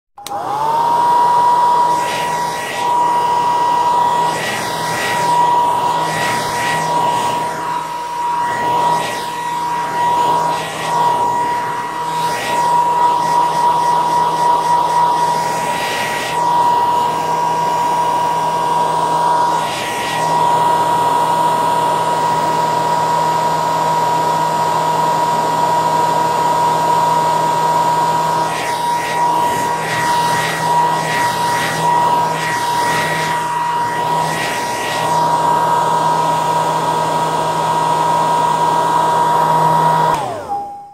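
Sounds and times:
hair dryer running: 0.2s - 40.9s.

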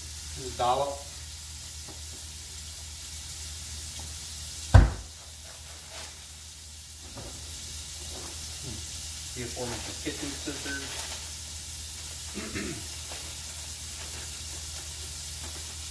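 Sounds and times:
bacon and garlic sizzling: 0.0s - 15.9s
sharp thump: 4.7s - 5.1s.

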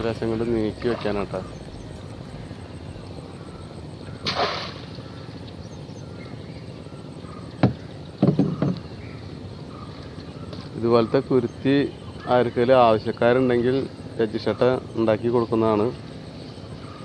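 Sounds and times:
wooden stick knocking against boat: 7.6s - 8.8s.

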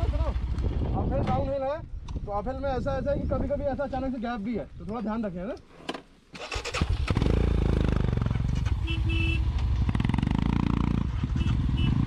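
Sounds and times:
motorcycle engine starting: 6.3s - 12.0s.

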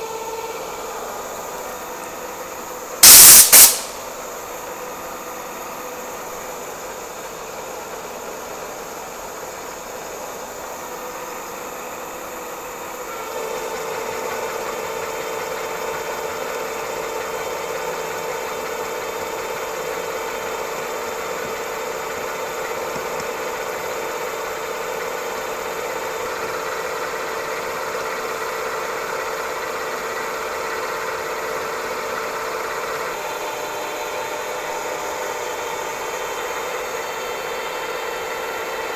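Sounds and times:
milling machine cutting steel: 3.0s - 4.0s
steady machine tone: 3.0s - 4.1s.

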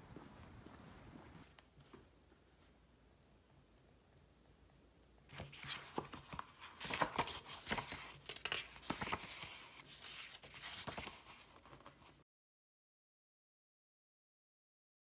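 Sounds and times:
book pages flipping: 5.3s - 12.2s.

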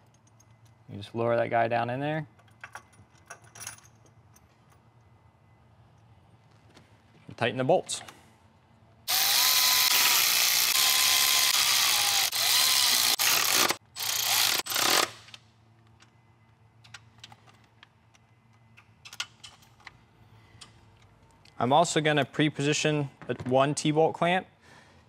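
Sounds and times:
electric ratchet motor whine: 9.1s - 15.1s.

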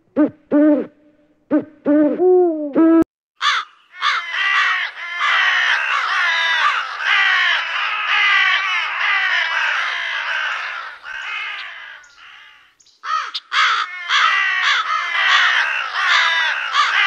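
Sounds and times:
crows cawing: 3.4s - 17.0s.

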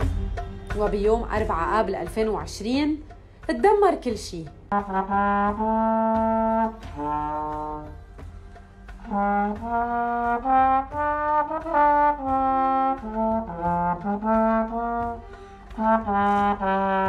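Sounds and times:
trombone playing slow melody: 4.7s - 8.0s, 9.0s - 17.0s.

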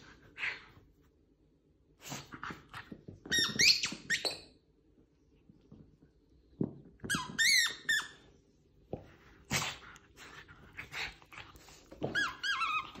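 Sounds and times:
squeaky rubber dog ball: 2.4s - 4.6s, 7.0s - 8.3s, 11.9s - 13.0s.

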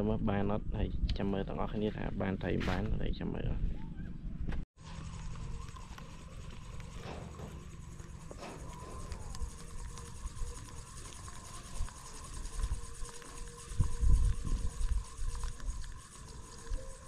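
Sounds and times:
wind buffeting microphone: 5.5s - 17.0s.

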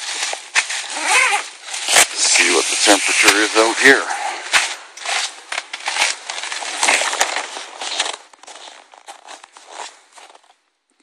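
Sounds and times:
tent fabric brushing: 0.0s - 3.7s
footsteps crunching in snow: 0.0s - 10.7s.

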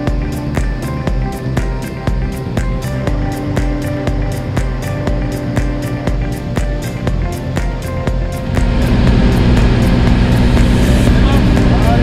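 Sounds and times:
background music with drum beat: 0.0s - 12.0s.

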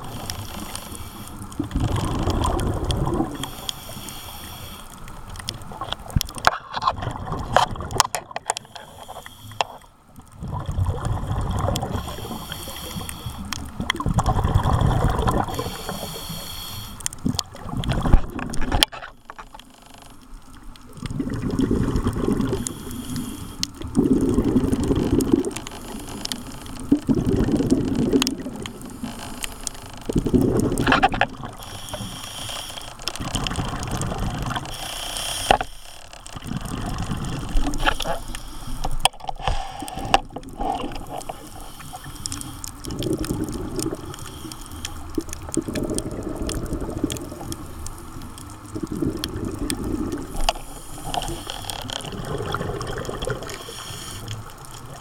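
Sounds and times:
regulator breathing inhale: 0.0s - 1.6s, 3.3s - 5.5s, 8.6s - 10.0s, 11.8s - 13.8s, 15.4s - 17.2s, 22.5s - 23.8s, 25.7s - 26.7s, 28.6s - 30.0s, 31.5s - 33.5s, 34.6s - 36.1s, 37.0s - 42.8s, 44.0s - 45.2s, 50.2s - 52.0s, 53.4s - 54.5s
bubbling exhaust: 1.6s - 3.5s, 10.4s - 16.2s, 23.9s - 25.5s, 42.8s - 44.2s, 45.3s - 47.6s, 48.6s - 54.2s.

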